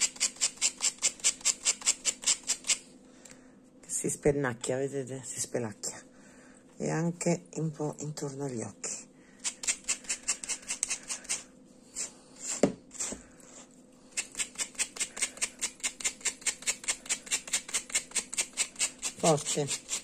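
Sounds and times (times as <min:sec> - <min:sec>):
brush raking through yarn: 0:17.4 - 0:20.0.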